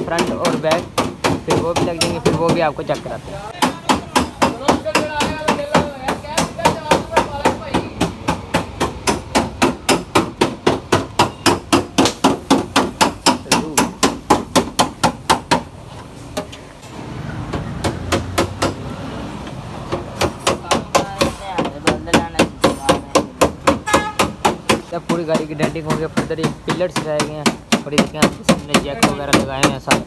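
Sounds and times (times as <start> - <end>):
hammer beating sheet metal: 0.0 - 2.8, 3.6 - 15.7, 17.5 - 18.9, 19.8 - 30.0.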